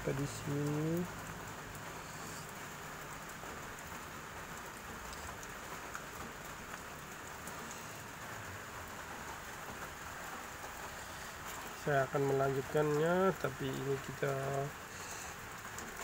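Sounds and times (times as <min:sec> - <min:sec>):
steady background hiss: 0:00.0 - 0:16.0
faint ticks: 0:04.6 - 0:08.0.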